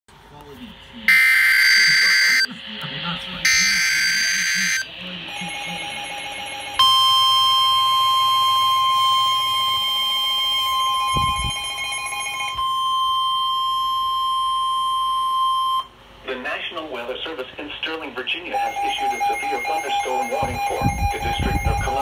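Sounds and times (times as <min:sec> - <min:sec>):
steady alarm tone: 0:01.0 - 0:16.0, 0:18.5 - 0:22.0
lower steady alert tone: 0:01.1 - 0:02.5, 0:03.4 - 0:15.9.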